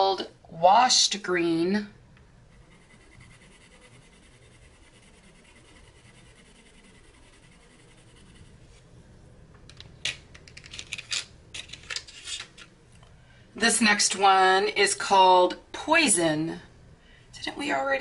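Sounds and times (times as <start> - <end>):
colored pencil scratching on paper: 2.5 - 8.8.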